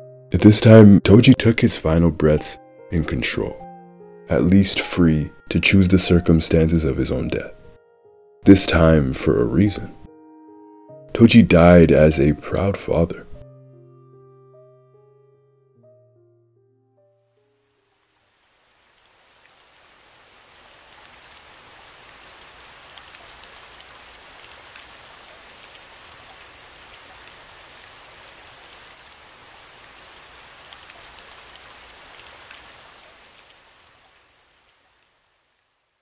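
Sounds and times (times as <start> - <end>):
rain falling: 17.6 - 36.0
raindrop ticks: 20.8 - 35.3.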